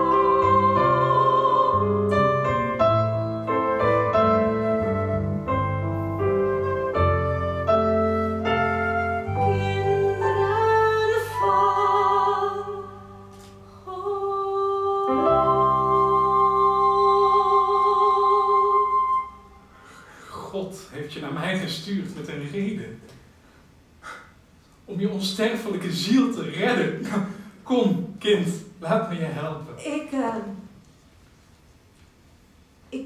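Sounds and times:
woman singing: 0.0 - 2.2, 9.3 - 13.2, 13.8 - 19.2
piano accompaniment: 0.0 - 14.0, 14.8 - 19.7.

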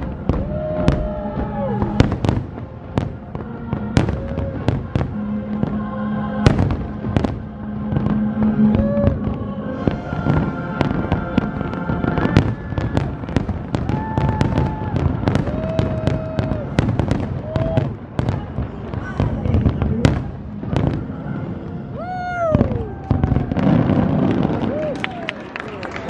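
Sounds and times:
music playing: 0.0 - 17.2
fireworks bursting: 0.0 - 25.3.

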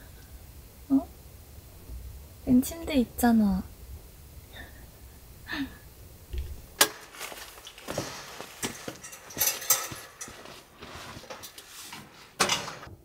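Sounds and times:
metal heater clinking and rattling: 6.8 - 12.9.

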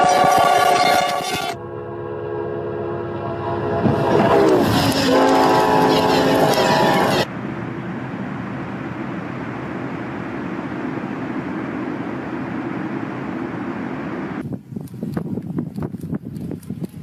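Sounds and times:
train horn: 0.0 - 7.3
train rushing through snow: 0.0 - 15.2.

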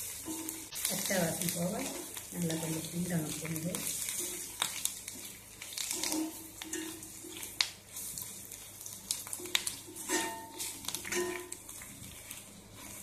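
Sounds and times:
food sizzling in oil: 0.0 - 13.0
metal spoon scraping a pan: 5.8 - 8.1, 9.4 - 13.0.

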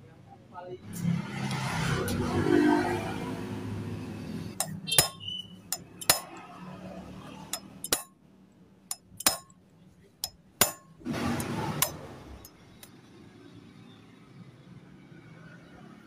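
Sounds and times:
metal tools clinking: 4.6 - 6.4, 7.4 - 8.1, 8.9 - 9.5.

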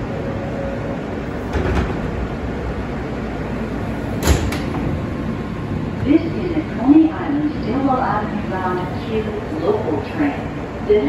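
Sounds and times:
train running hum: 0.0 - 11.0
sliding doors clunking: 1.1 - 6.1.

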